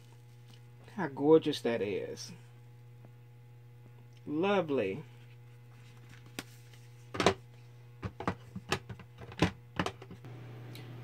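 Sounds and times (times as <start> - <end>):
low electrical hum: 0.0 - 11.0
plastic cases clicking and knocking: 7.1 - 7.4, 8.0 - 10.2.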